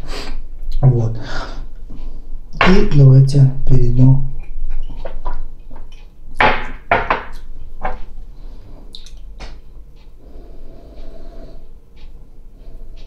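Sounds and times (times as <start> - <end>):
breath and mouth sounds: 10.2 - 11.7.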